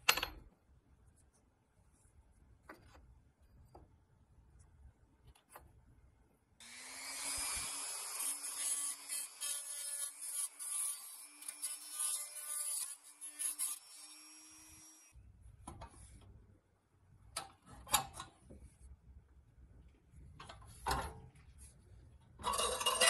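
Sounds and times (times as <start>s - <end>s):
rotary tool grinding metal: 6.6s - 15.1s, 22.4s - 23.0s.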